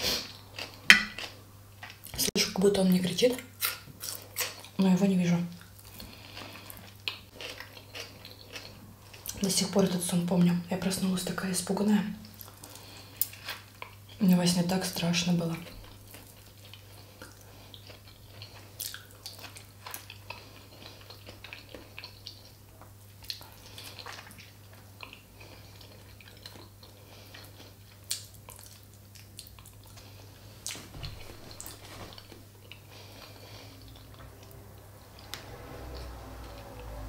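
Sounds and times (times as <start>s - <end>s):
person chewing food: 0.0s - 2.2s, 3.6s - 4.8s, 5.6s - 9.5s, 12.2s - 14.2s, 15.7s - 37.0s
low hum: 30.9s - 37.0s.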